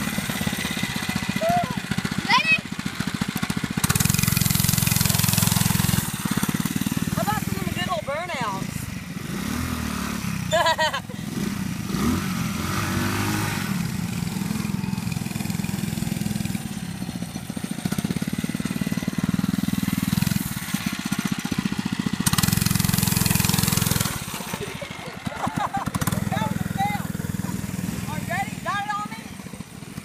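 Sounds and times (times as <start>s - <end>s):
small motorbike engines running: 0.0s - 30.0s
engine revving hard: 3.8s - 16.6s, 22.2s - 28.9s.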